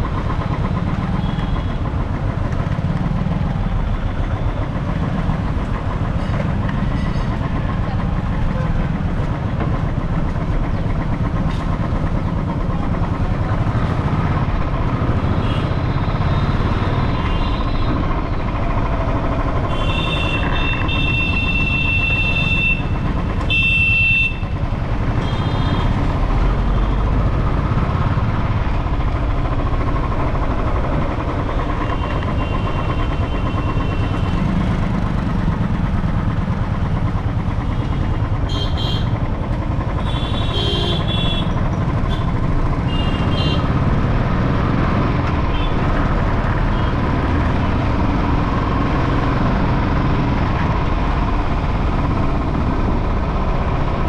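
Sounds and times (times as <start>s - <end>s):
bike ride rumble: 0.0s - 54.0s
vehicle horns honking: 19.7s - 24.6s, 38.5s - 39.2s, 40.0s - 43.7s.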